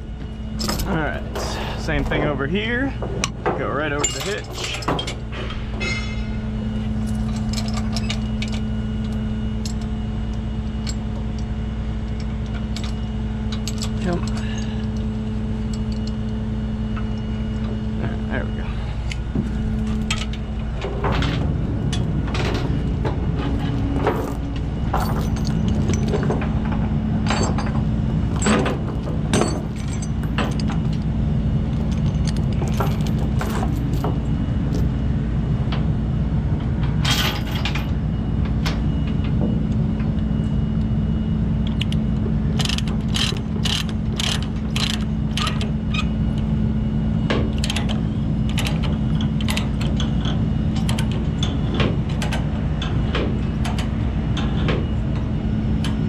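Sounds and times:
low engine hum: 0:00.0 - 0:56.0
chain clinking on wooden deck: 0:04.0 - 0:09.9, 0:23.6 - 0:31.0, 0:31.7 - 0:34.2
ratchet binder clicking: 0:42.6 - 0:45.7.

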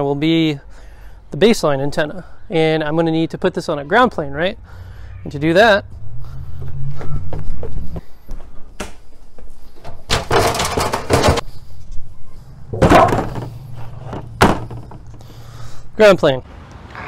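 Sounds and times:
baking sheet scraping rattle: 0:10.0 - 0:11.5.

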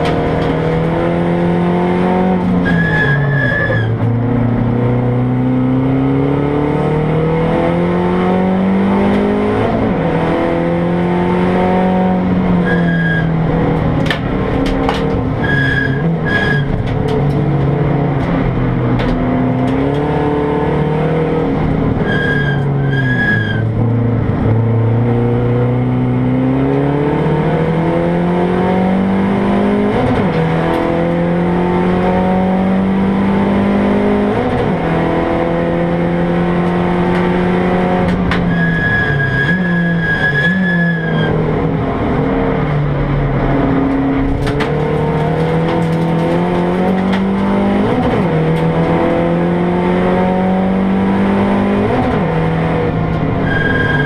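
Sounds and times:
race car engine revving: 0:00.0 - 0:54.0
high steady squeal: 0:15.4 - 0:16.7, 0:38.5 - 0:41.4, 0:53.4 - 0:54.0.

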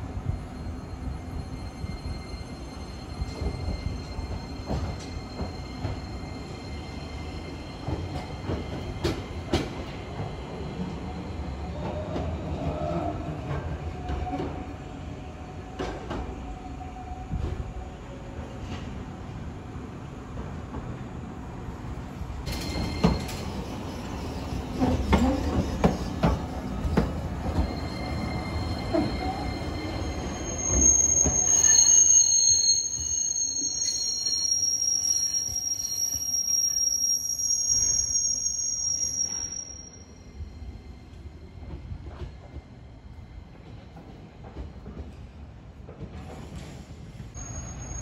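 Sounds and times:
streetcar rumbling over rail joints: 0:18.4 - 0:32.5
wheels squealing on curve: 0:27.5 - 0:40.1.

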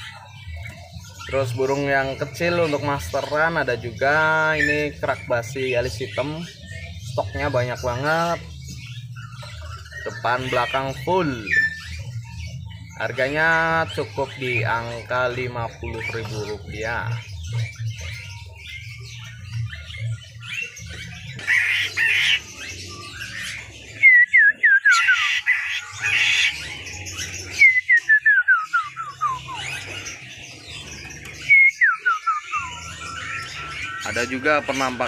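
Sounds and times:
bird harsh chattering: 0:00.0 - 0:35.0
bird whistling downward notes: 0:21.9 - 0:30.1, 0:31.2 - 0:35.0.

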